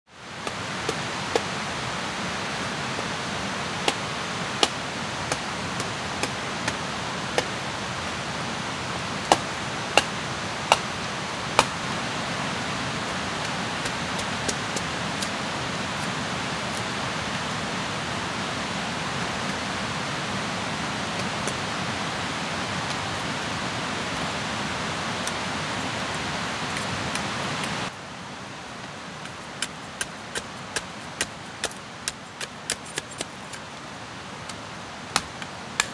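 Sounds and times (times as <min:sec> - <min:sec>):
forest ambience rushing: 0:00.1 - 0:35.9
machete striking wood: 0:09.3 - 0:10.9.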